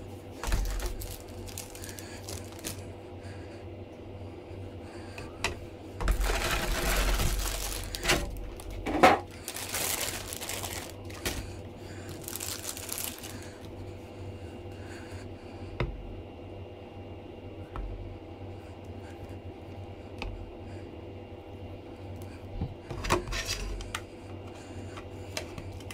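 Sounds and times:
plastic bag crinkling: 0.4 - 2.9, 6.1 - 13.7.

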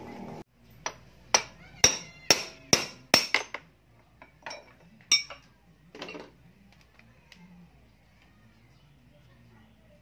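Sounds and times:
hammer striking steel bar: 0.8 - 3.6.

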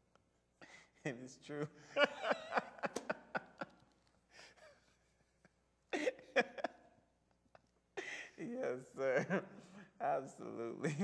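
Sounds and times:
man chuckling softly: 5.9 - 6.9.

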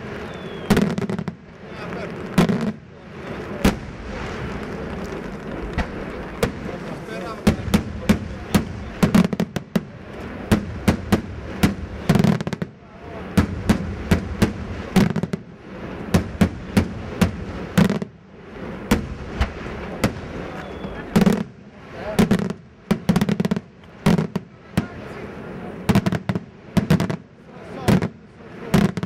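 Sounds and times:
fireworks bursting: 0.0 - 29.0.

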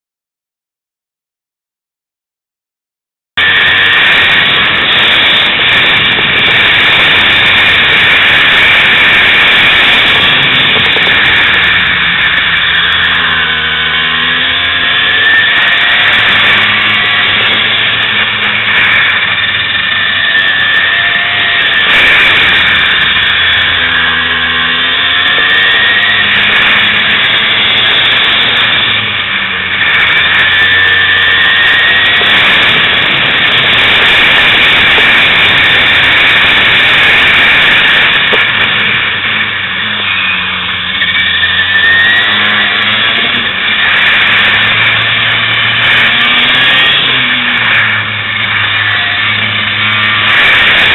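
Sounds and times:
kart engine revving: 3.4 - 50.9.

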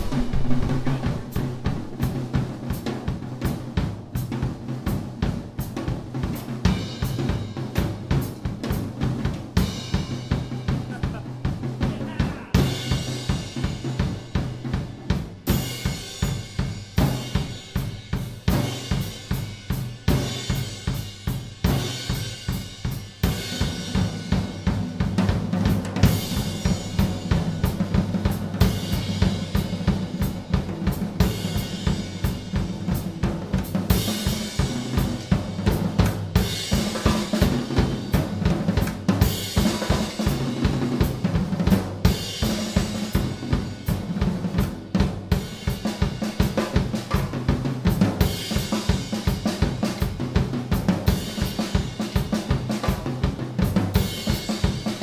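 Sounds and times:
cymbal crashes: 0.0 - 2.8, 26.0 - 29.6
drum kit beat: 0.0 - 55.0.

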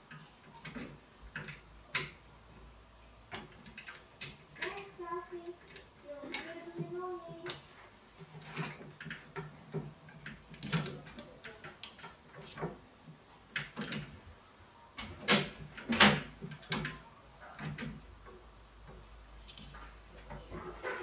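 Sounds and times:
metal bracket clicks and knocks: 13.5 - 14.2.

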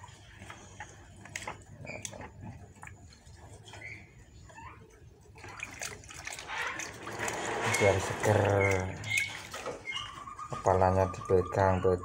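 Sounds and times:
water splashing in a basin: 5.3 - 11.4.

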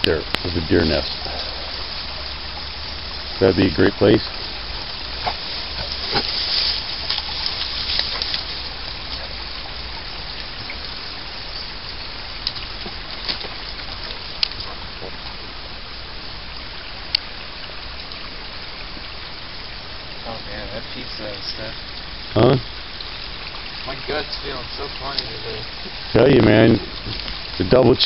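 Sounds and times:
steady hiss: 0.0 - 28.0
leaves and twigs crackling: 4.2 - 15.5.

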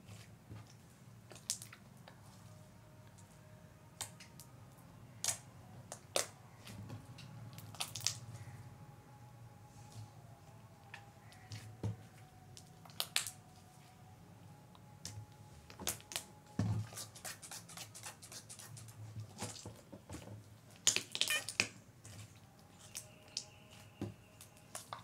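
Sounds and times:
faint low hum: 0.0 - 17.3.

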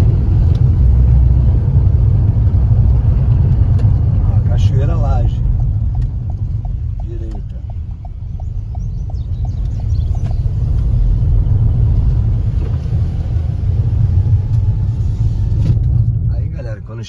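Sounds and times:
tyres rumbling on dirt road: 0.0 - 17.0
turn indicator ticking: 3.2 - 11.0.

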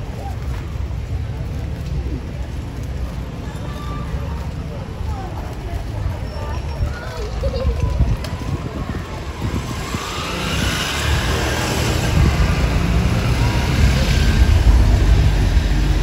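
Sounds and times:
motor vehicle passing: 9.4 - 16.0.

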